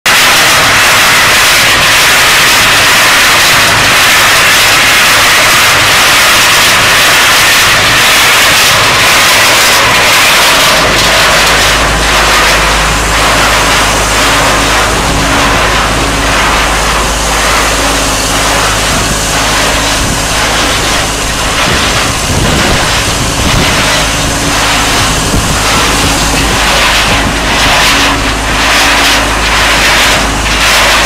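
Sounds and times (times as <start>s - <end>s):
coal tumbling in rotating drum: 0.1s - 31.0s
machine engine running: 0.1s - 31.0s
deep low hum: 8.8s - 31.0s.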